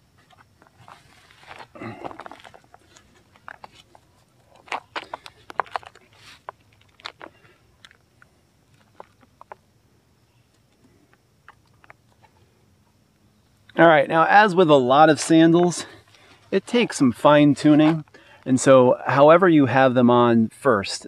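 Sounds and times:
straps sliding and rustling: 0:00.2 - 0:04.1, 0:04.7 - 0:06.5.

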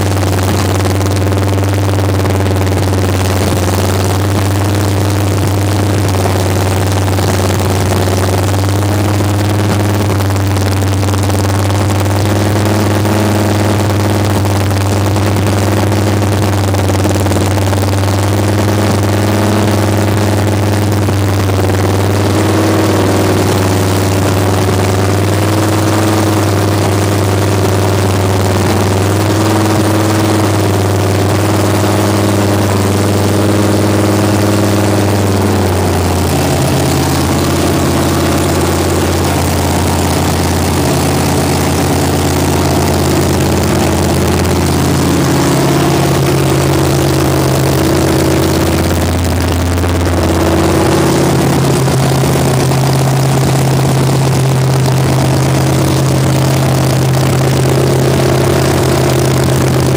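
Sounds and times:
engine idling: 0:00.0 - 0:59.9.

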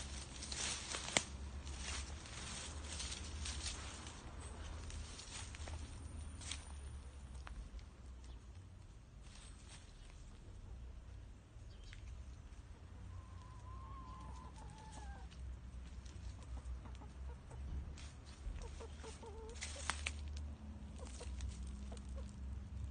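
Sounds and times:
hens clucking: 0:12.9 - 0:22.5.

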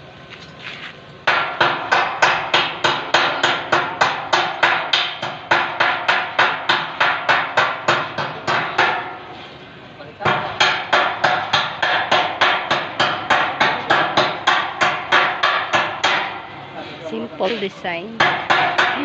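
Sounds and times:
hammer striking steel frame: 0:01.2 - 0:09.5, 0:10.2 - 0:16.6, 0:18.2 - 0:19.0.

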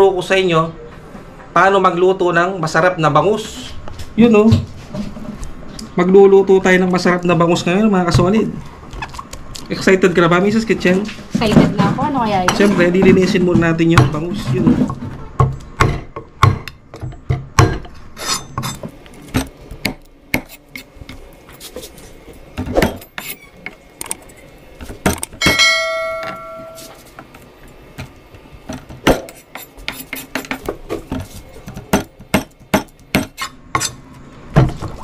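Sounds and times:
knife scraping cutting board: 0:18.2 - 0:19.5, 0:22.7 - 0:23.6, 0:29.2 - 0:31.6
metal ringing: 0:25.4 - 0:27.0.

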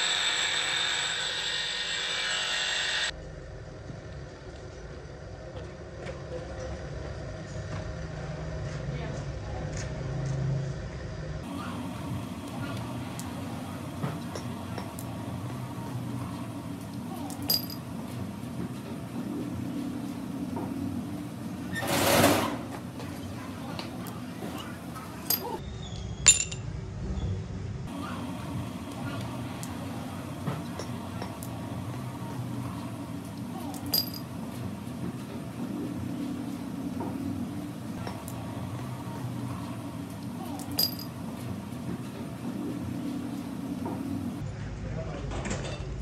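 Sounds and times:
metal rollers rubbing in sand: 0:21.6 - 0:22.8
sharp metallic clink: 0:26.3 - 0:26.7
faint clinks: 0:33.7 - 0:34.3, 0:40.6 - 0:41.1.

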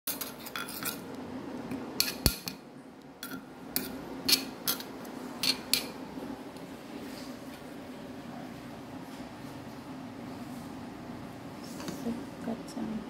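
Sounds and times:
spoon scraping stone mortar: 0:00.1 - 0:01.1
low steady hum: 0:00.1 - 0:13.0.

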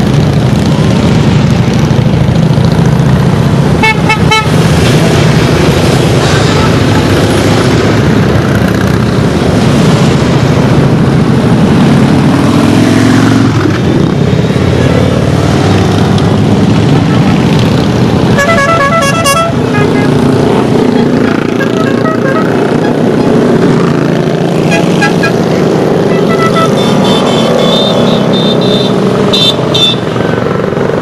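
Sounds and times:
motorcycles riding past: 0:00.0 - 0:31.0
horn tooting: 0:03.8 - 0:04.6, 0:06.4 - 0:07.2, 0:18.3 - 0:20.2, 0:20.9 - 0:23.0, 0:24.6 - 0:30.1.

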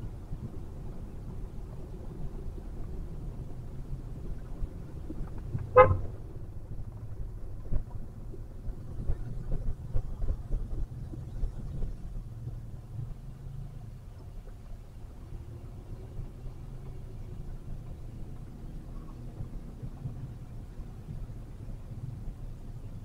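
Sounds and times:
road and engine rumble: 0:00.0 - 0:23.0
vehicle horn toot: 0:05.7 - 0:06.1.

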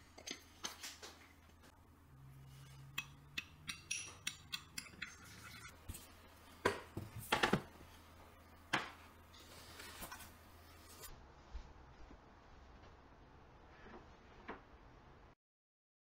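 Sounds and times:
spoon clinking ceramic bowl: 0:02.9 - 0:05.7.

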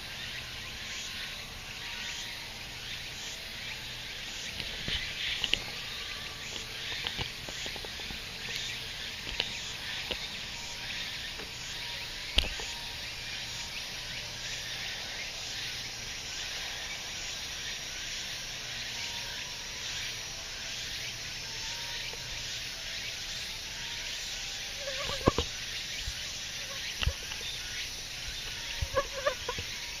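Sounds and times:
insect chorus buzzing: 0:00.0 - 0:30.0
mosquito whining: 0:18.7 - 0:30.0.

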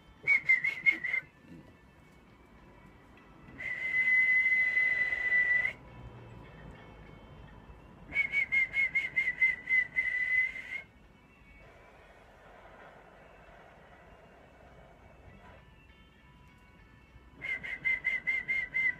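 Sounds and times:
man whistling into telephone: 0:00.2 - 0:01.4, 0:03.5 - 0:05.8, 0:08.1 - 0:10.9, 0:17.4 - 0:18.9.

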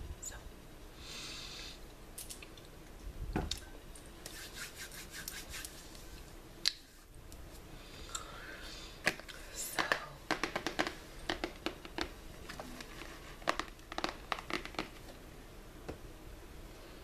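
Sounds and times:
hands tapping: 0:09.8 - 0:12.2, 0:13.4 - 0:15.0
crinkling near microphone: 0:09.8 - 0:15.2.

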